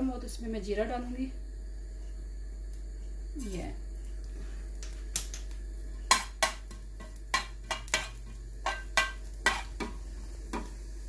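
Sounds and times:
metal spoon clinking on a pan: 0:06.1 - 0:09.8.

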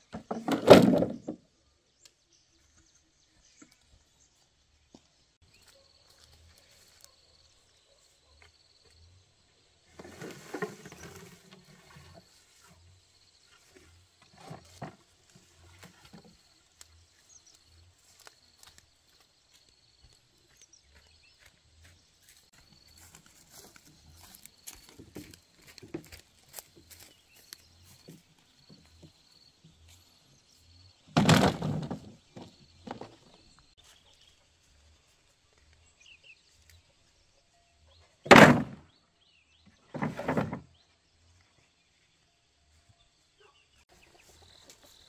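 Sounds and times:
bamboo poles knocking and rustling: 0:00.0 - 0:01.4, 0:13.7 - 0:17.0, 0:18.0 - 0:19.6, 0:22.3 - 0:29.2, 0:31.1 - 0:34.0, 0:38.3 - 0:38.8, 0:39.9 - 0:40.7
loud bamboo knocks: 0:00.2 - 0:01.4, 0:31.2 - 0:33.0, 0:38.3 - 0:38.8.

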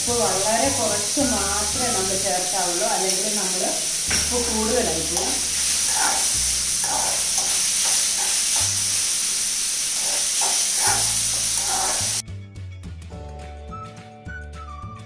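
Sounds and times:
vegetables sizzling in oil: 0:00.0 - 0:12.2
soft background music: 0:00.0 - 0:15.0
metal spoon scraping pan: 0:04.0 - 0:09.0, 0:09.9 - 0:12.2.

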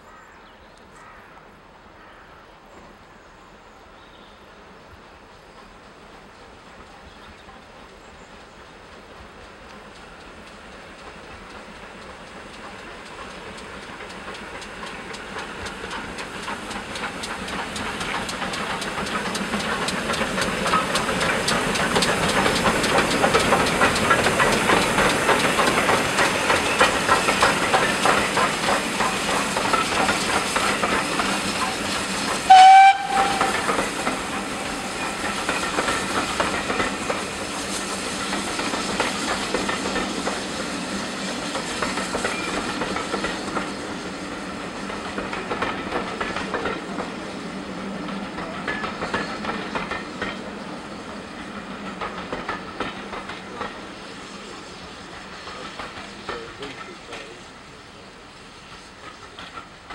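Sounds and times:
steam locomotives chuffing: 0:04.5 - 0:59.9
train wheels clattering over rail joints: 0:08.5 - 0:59.9
steam whistle blast: 0:32.5 - 0:33.8.

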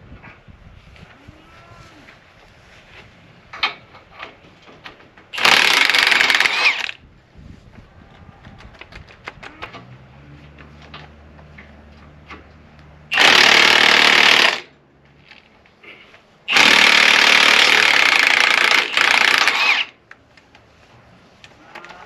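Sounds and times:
impact wrench running: 0:05.4 - 0:07.0, 0:13.1 - 0:14.7, 0:16.5 - 0:20.0.

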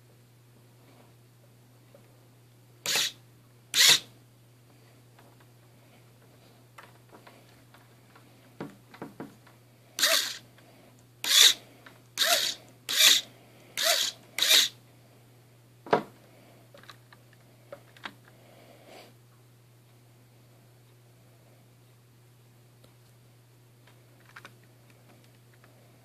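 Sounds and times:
small electric motors whirring: 0:02.9 - 0:03.2, 0:03.8 - 0:04.0, 0:10.0 - 0:10.4, 0:11.2 - 0:11.6, 0:12.2 - 0:13.2, 0:13.8 - 0:14.7.

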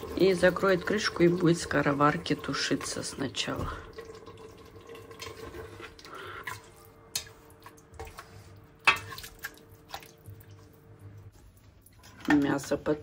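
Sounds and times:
kitchen utensils clicking and knocking: 0:11.9 - 0:13.0.

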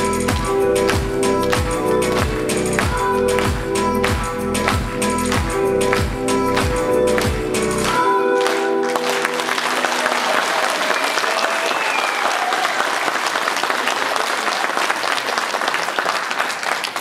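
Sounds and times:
dance music: 0:00.0 - 0:10.4
audience applauding: 0:06.6 - 0:17.0.

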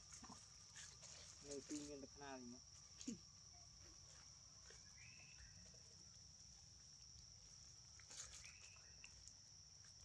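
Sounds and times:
soft rustles: 0:00.0 - 0:02.0, 0:08.0 - 0:09.3.

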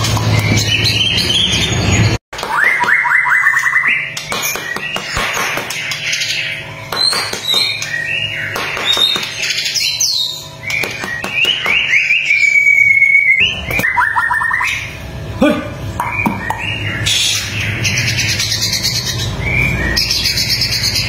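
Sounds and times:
bird singing whistled phrases: 0:02.5 - 0:04.1, 0:07.0 - 0:14.9.

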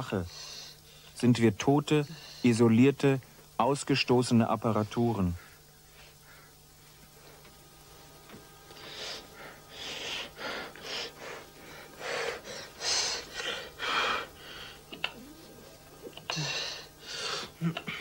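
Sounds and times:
person breathing hard: 0:08.7 - 0:14.9, 0:16.2 - 0:18.0.

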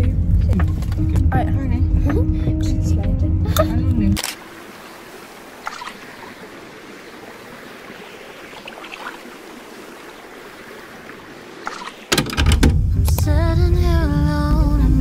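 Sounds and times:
running water hissing: 0:04.2 - 0:12.2.

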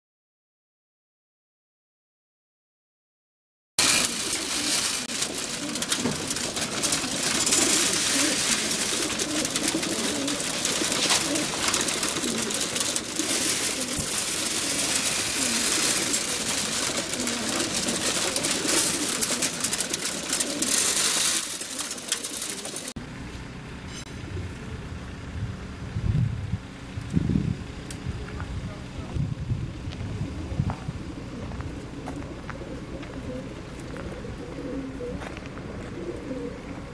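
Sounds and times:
pigeons cooing: 0:03.8 - 0:23.0, 0:30.0 - 0:36.9
constant bright hiss: 0:03.8 - 0:24.1
quiet outdoor ambience: 0:03.8 - 0:36.9.

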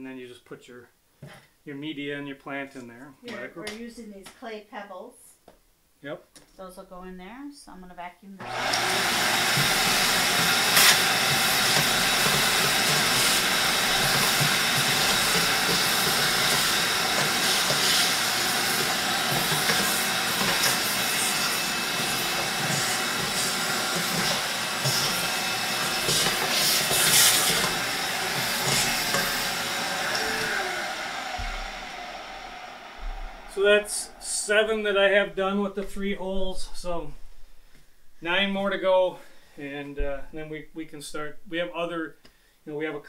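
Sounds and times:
vacuum cleaner running: 0:08.4 - 0:35.2
debris crackling in vacuum hose: 0:08.5 - 0:30.6.

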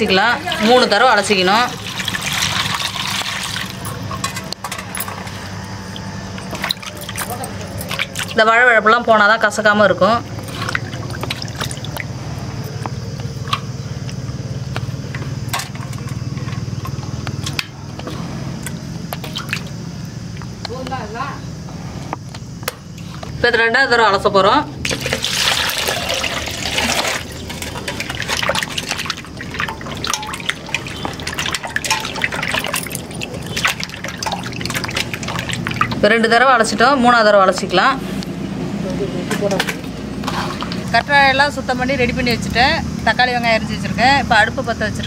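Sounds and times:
water splashing and dripping: 0:00.0 - 0:08.5, 0:10.0 - 0:17.7, 0:18.6 - 0:20.5, 0:24.8 - 0:36.2, 0:39.8 - 0:41.2
low pulsing engine-like drone: 0:03.7 - 0:23.4.

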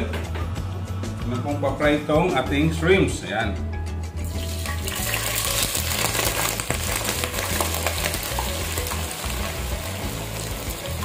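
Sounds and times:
shrimp sizzling in hot oil: 0:04.2 - 0:11.0.

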